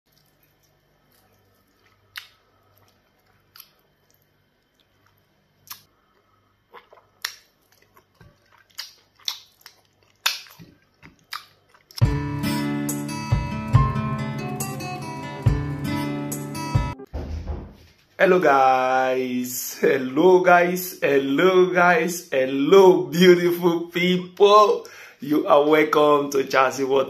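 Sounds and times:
wet chewing and smacking: 0:00.1 - 0:12.0
strummed acoustic guitar music: 0:12.0 - 0:17.1.

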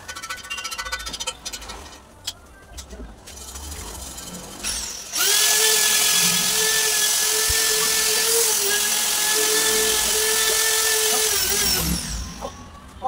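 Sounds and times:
rotary buffing tool whining: 0:04.4 - 0:12.6.

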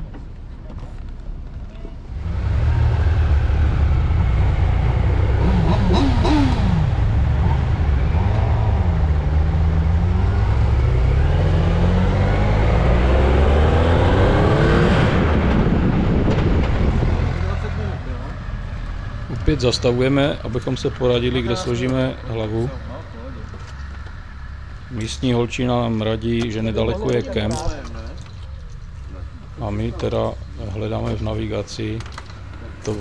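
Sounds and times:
motorcycle engine accelerating: 0:02.2 - 0:20.5
wind rumble on microphone: 0:11.7 - 0:18.0.

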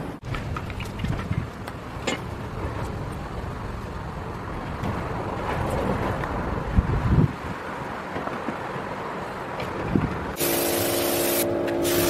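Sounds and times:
air compressor running: 0:10.4 - 0:12.0.

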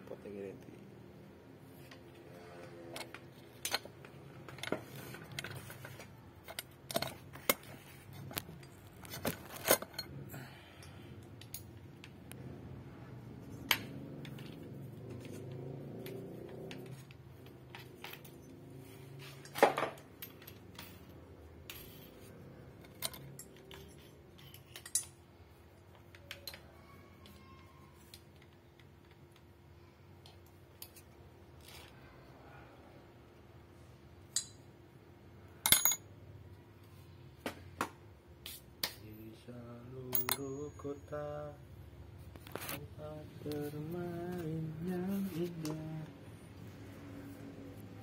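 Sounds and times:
metal parts and tools clinking: 0:01.8 - 0:12.4, 0:13.3 - 0:29.4, 0:34.3 - 0:34.7, 0:35.6 - 0:36.1, 0:40.0 - 0:41.1.

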